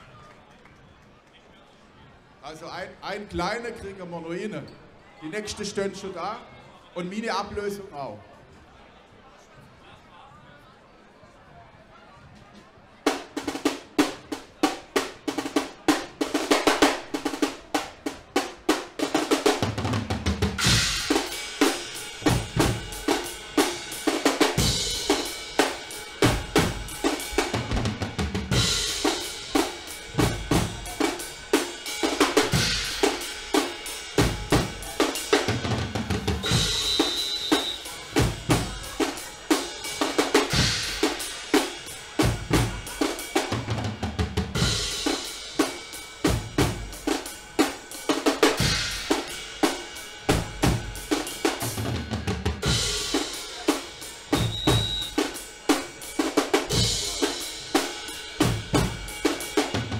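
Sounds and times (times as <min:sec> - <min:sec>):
snare drums: 0:13.0 - 0:59.9
cymbals: 0:13.1 - 0:59.9
bass drums: 0:19.0 - 0:59.9.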